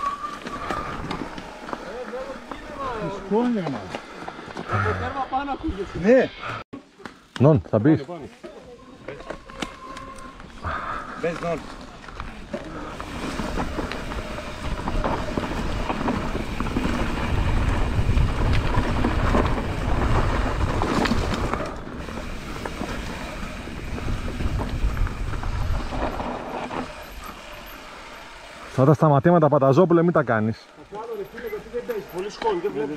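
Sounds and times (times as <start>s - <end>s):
tyres rumbling on gravel: 0.0s - 5.2s, 8.5s - 32.9s
bike knocking and rattling: 8.4s - 28.6s
wind buffeting microphone: 13.0s - 27.0s.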